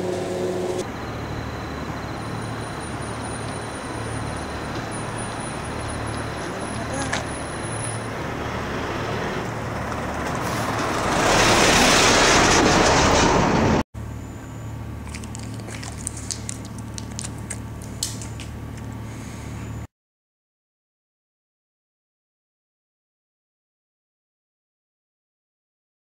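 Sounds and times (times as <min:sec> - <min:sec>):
truck driving past: 0:00.0 - 0:15.0
low steady hum: 0:14.0 - 0:19.9.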